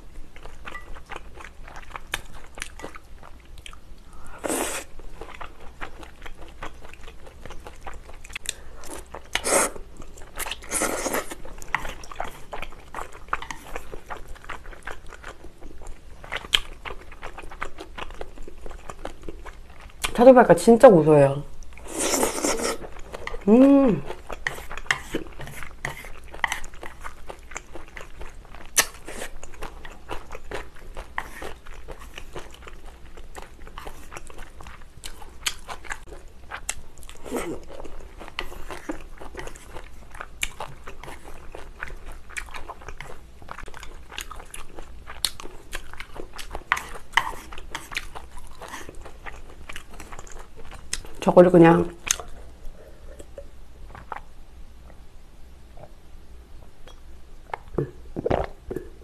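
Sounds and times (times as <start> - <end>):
chewing noodles: 4.7 - 20.2, 21.6 - 51.2
person humming: 23.4 - 24.1.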